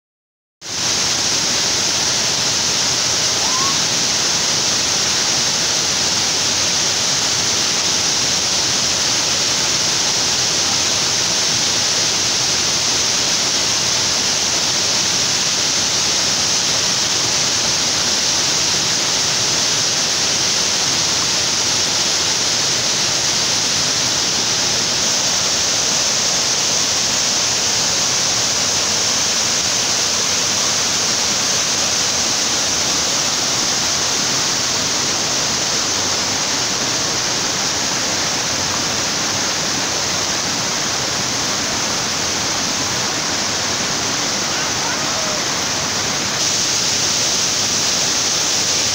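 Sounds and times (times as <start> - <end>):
waterfall and stream rushing: 0.6 - 48.9.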